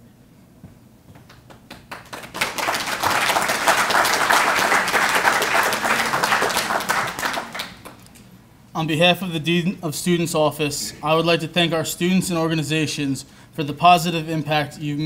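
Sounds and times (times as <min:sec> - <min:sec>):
audience applauding: 0:01.3 - 0:08.1.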